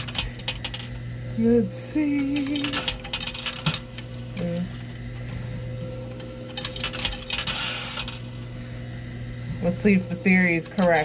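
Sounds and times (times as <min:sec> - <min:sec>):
steady machine hum: 0:00.0 - 0:11.0
coins clinking and clattering: 0:06.5 - 0:08.4.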